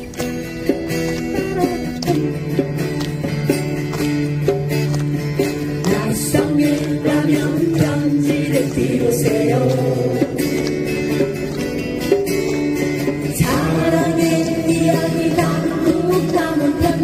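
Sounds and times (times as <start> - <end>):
acoustic guitars strumming: 0.0 - 17.0
group singing: 5.8 - 10.8, 13.2 - 17.0.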